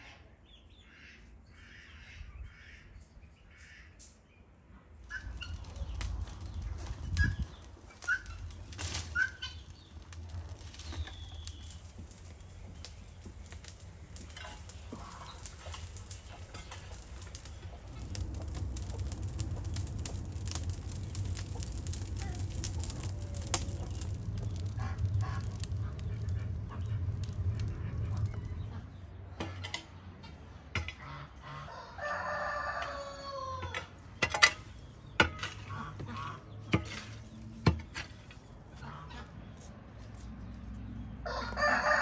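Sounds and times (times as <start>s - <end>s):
wood fire roaring and crackling: 4.9s - 30.1s, 30.7s - 42.0s
rooster crowing: 31.6s - 33.8s, 41.2s - 42.0s.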